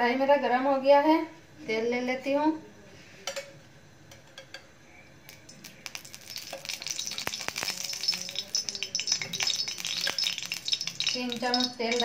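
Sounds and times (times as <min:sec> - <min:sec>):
oil sizzling and crackling: 0:05.3 - 0:12.0.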